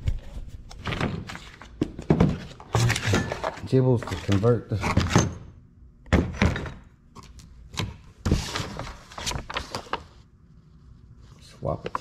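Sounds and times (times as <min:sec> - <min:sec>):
paper and cardboard rustling: 0:08.2 - 0:10.2.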